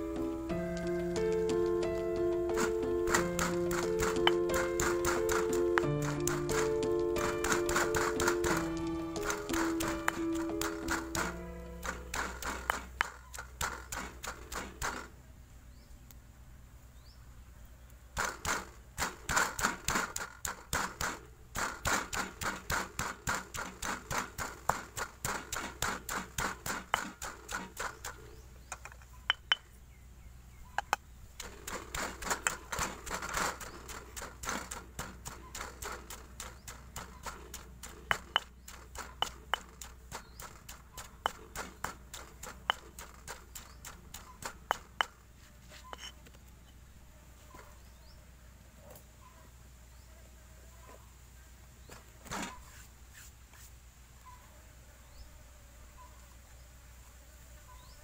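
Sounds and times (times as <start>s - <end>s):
pestle pounding in stone mortar: 0.6s - 15.1s, 18.2s - 28.2s, 30.8s - 45.2s.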